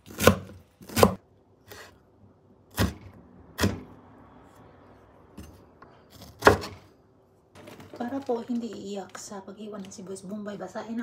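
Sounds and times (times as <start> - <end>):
knife slicing pepper: 0.0 - 1.9.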